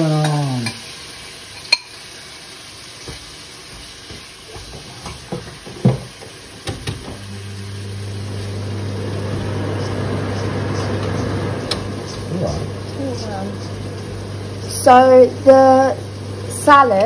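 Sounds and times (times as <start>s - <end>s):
kitchen appliance humming: 2.5s - 17.0s
kitchenware knocks: 4.1s - 7.2s.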